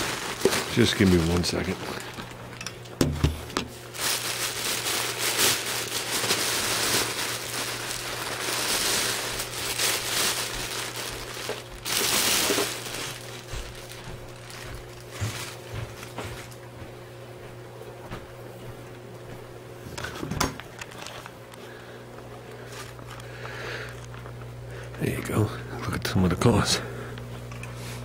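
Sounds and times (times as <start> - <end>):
packaging rustling and crinkling: 0.0 - 16.6, 20.6 - 21.7, 22.5 - 24.4
steady low hum: 0.0 - 28.0.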